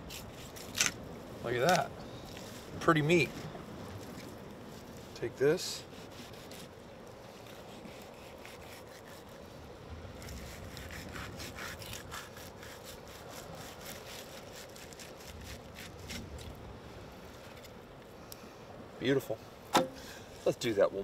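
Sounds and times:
knife scraping fish fillet: 5.8 - 6.7, 7.4 - 9.4, 10.2 - 16.3.

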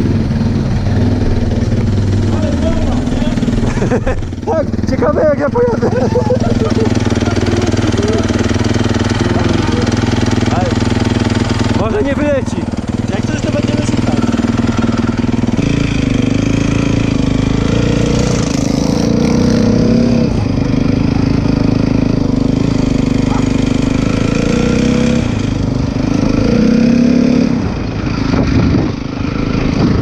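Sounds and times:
dirt bike engine revving: 0.0 - 30.0.

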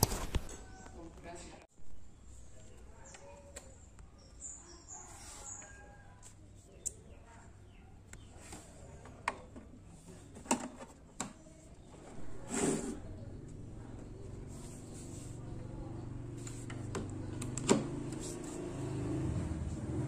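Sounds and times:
faint bird chirps: 0.5 - 1.1, 1.8 - 8.4.

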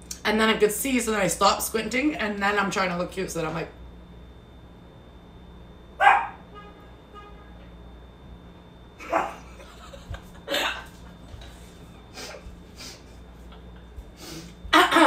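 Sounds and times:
woman laughing: 9.0 - 11.1, 14.7 - 15.0.

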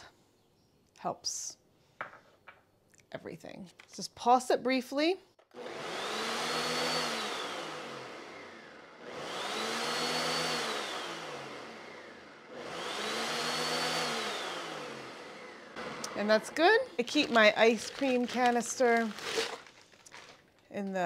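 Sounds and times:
blender motor whining: 5.5 - 20.4.

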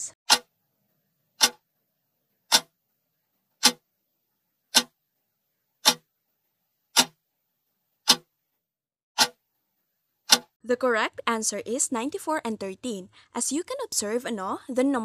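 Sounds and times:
clock ticking: 0.0 - 0.6, 1.4 - 1.7, 2.5 - 2.8, 3.6 - 3.9, 4.7 - 5.0, 5.8 - 6.1, 6.9 - 7.2, 8.0 - 8.3, 9.2 - 9.4, 10.3 - 10.6.

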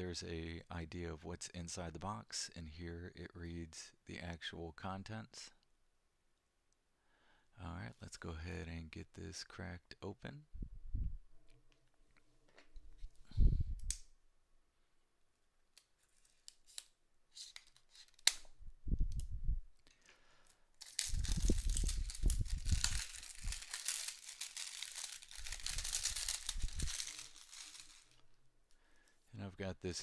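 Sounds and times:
plastic wrap tearing and crinkling: 16.0 - 18.5, 20.8 - 28.2.

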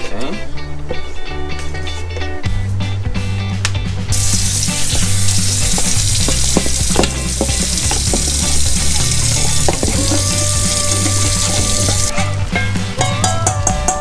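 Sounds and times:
background music: 0.0 - 14.0
tap running water into bowl: 4.7 - 12.1.

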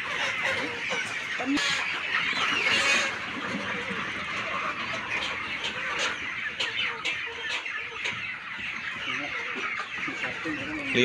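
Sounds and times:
chickens clucking and squawking: 0.0 - 11.0.

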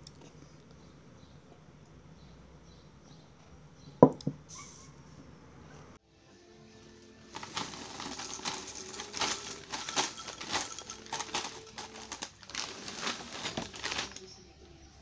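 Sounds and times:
cereal pouring into a bowl: 7.3 - 14.3
plastic bag crinkling: 7.3 - 14.4.

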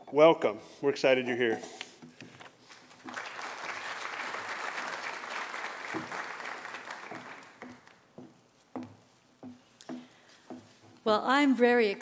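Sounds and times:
audience applauding: 2.7 - 8.0.

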